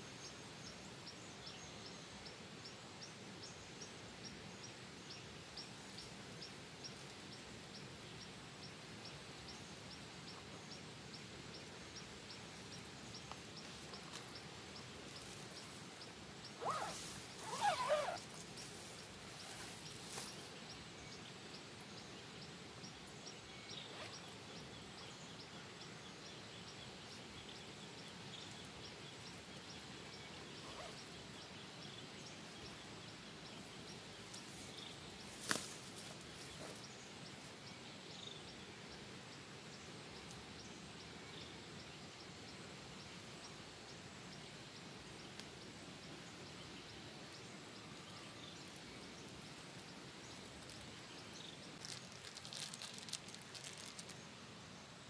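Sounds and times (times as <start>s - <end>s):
outdoor hiss: 0.0s - 55.0s.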